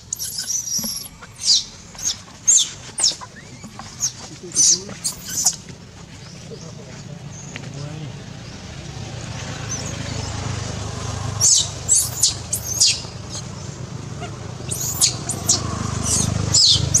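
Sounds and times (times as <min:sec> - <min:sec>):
infant monkey squealing: 0:00.0 - 0:05.6, 0:11.4 - 0:13.5, 0:14.2 - 0:17.0.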